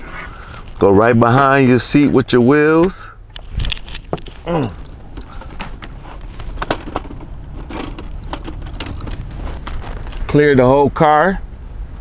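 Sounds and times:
wheelchair frame clicking and scraping: 0:03.3 - 0:10.4.

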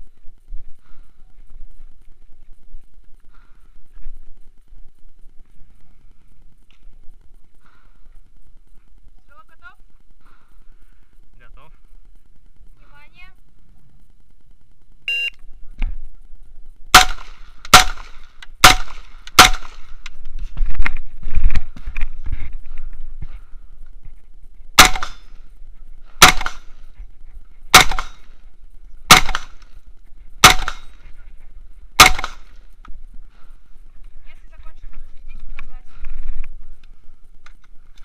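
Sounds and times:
rifle shots: 0:16.9 - 0:20.0, 0:24.8 - 0:25.4, 0:26.2 - 0:26.9, 0:27.7 - 0:28.4, 0:29.0 - 0:29.8, 0:30.4 - 0:31.0, 0:32.0 - 0:32.7.

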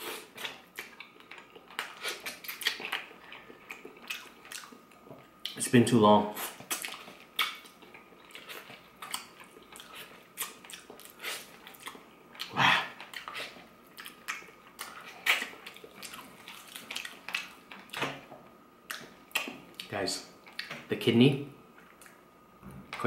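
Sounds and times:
person chewing meat off bone: 0:00.0 - 0:05.6, 0:06.5 - 0:18.0.

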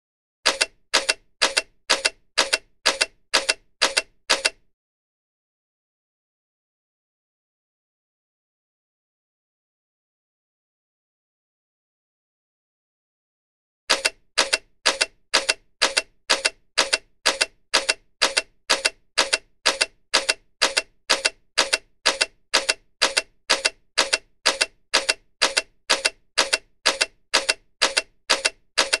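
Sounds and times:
camera shutter clicks: 0:00.5 - 0:04.6, 0:13.9 - 0:29.0.

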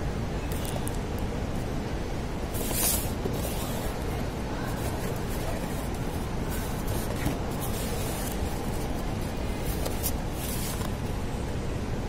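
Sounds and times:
food packaging rustling: 0:04.6 - 0:11.0.

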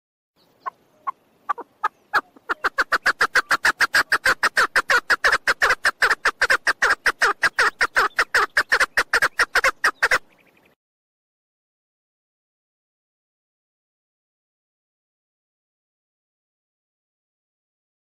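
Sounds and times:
partridge chuck calls: 0:00.4 - 0:10.7.

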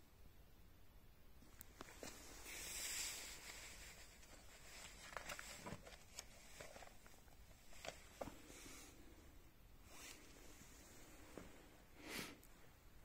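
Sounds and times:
paper page turning: 0:01.8 - 0:08.4.

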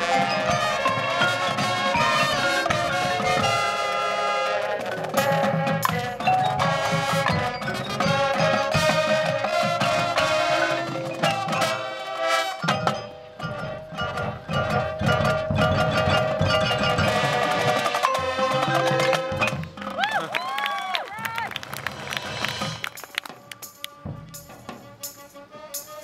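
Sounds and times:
marimbas and bells: 0:00.0 - 0:19.8
drums: 0:00.0 - 0:26.0
marching band playing: 0:00.0 - 0:26.0.

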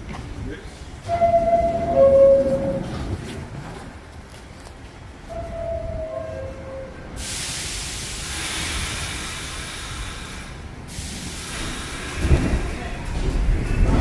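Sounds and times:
train rumble: 0:00.0 - 0:14.0
air brakes hissing: 0:07.1 - 0:12.6.

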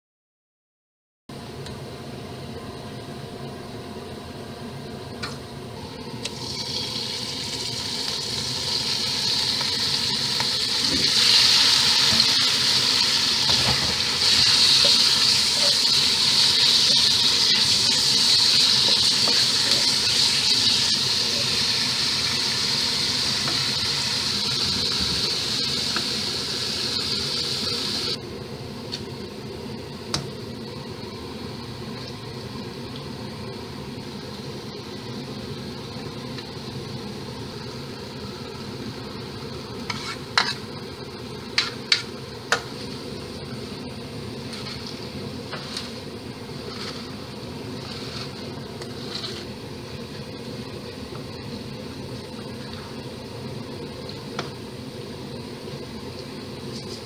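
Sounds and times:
meat sizzling in hot oil: 0:06.3 - 0:28.2.

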